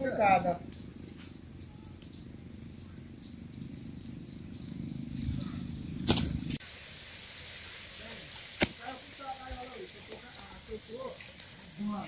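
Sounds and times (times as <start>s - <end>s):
steady low rumble: 0.0s - 6.6s.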